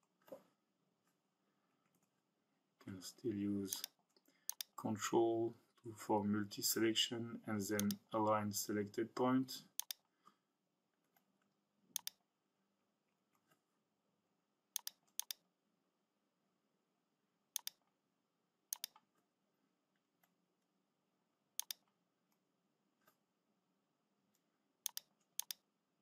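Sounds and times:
computer mouse clicking: 3.7 - 4.8, 7.8 - 8.0, 9.8 - 10.1, 11.9 - 12.2, 14.8 - 15.4, 17.6 - 17.9, 18.7 - 19.2, 21.6 - 22.0, 24.8 - 25.6.

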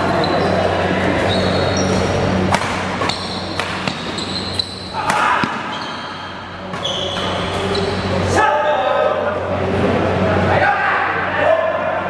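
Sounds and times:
shoes squeaking on court floor: 0.0 - 8.3
rackets striking shuttlecock: 2.5 - 5.7.

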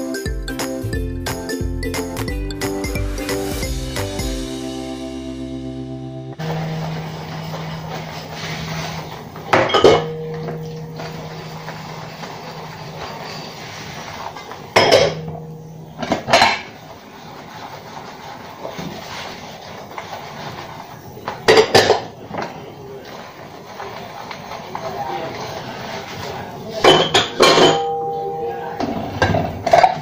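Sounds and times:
dishes clattering and clinking: 6.4 - 19.1, 21.2 - 30.0.

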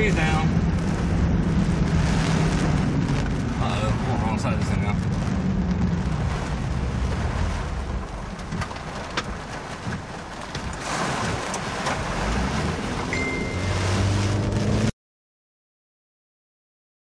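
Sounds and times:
heavy rain and wind on car: 0.0 - 14.9
tyres on wet road: 0.0 - 14.9
high beep: 13.1 - 13.8.

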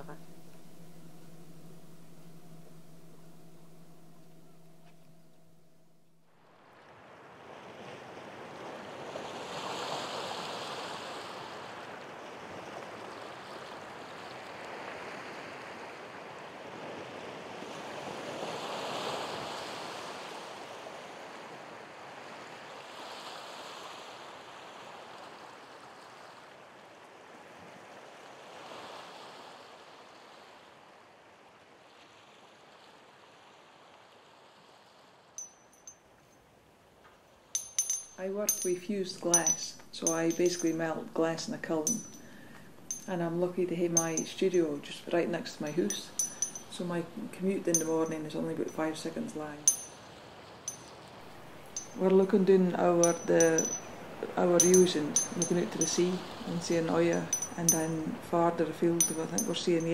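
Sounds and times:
sea waves washing on shore: 6.7 - 35.2, 43.9 - 59.9.

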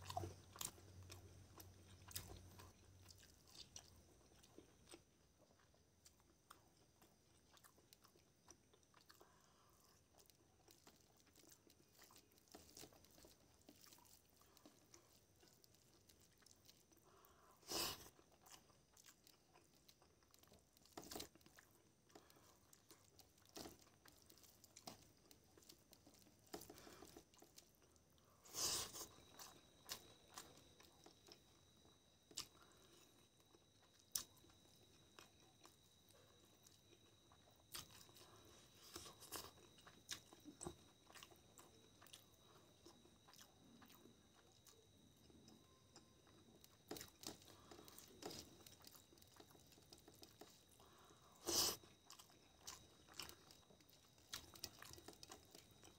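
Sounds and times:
mouth chewing: 0.0 - 55.9.

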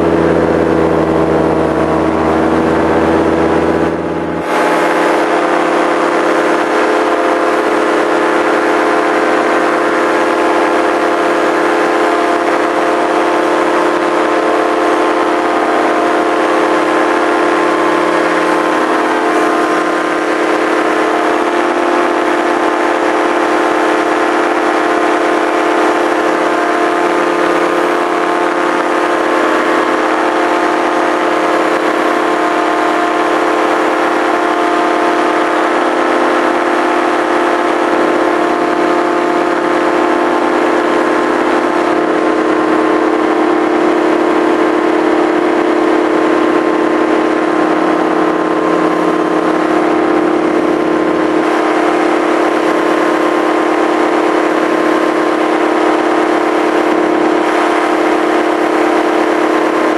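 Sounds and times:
small aircraft engine: 0.0 - 59.9.

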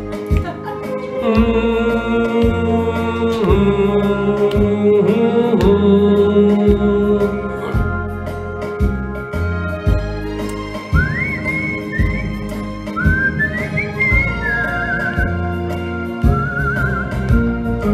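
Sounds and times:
karaoke backing track: 0.0 - 17.9
man singing into microphone: 1.1 - 8.0.

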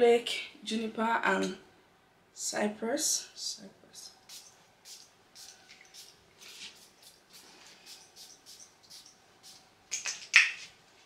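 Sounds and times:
perfume atomizer spraying: 4.3 - 10.2.

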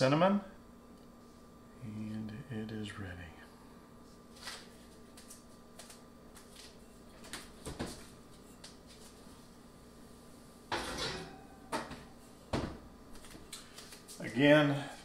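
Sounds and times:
dish scraping on oven rack: 10.7 - 12.2.

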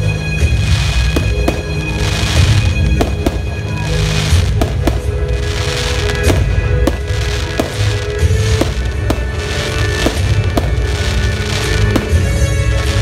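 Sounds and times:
fireworks bursting bangs: 0.0 - 13.0
music: 0.0 - 13.0
crackling sparks: 0.4 - 13.0.

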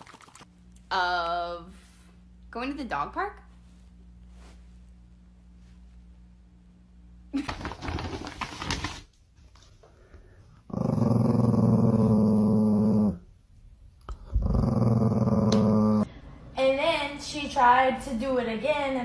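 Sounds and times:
small dog growling: 10.7 - 13.3, 14.1 - 16.1.

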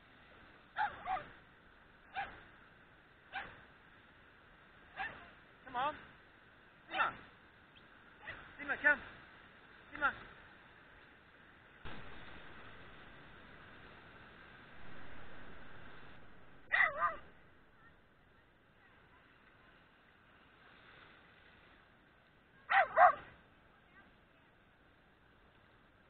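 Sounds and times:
dog barking: 0.8 - 1.3, 2.1 - 2.4, 3.3 - 3.6, 4.9 - 5.3, 16.7 - 17.3, 22.7 - 23.3.

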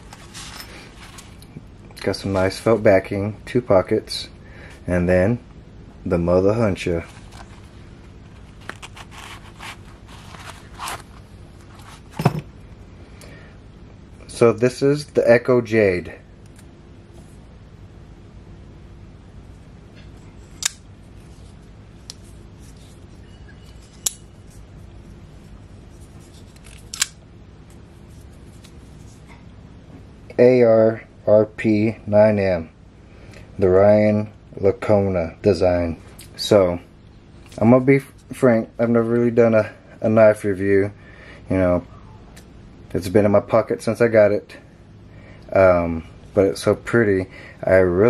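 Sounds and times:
pouch rustling and scraping: 7.0 - 12.3.

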